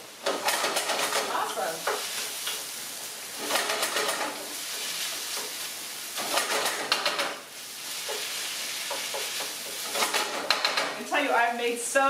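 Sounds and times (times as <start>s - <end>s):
food sizzling in a frying pan: 1.2s - 12.0s
stirring and scraping in pan: 1.3s - 3.5s, 4.2s - 11.0s.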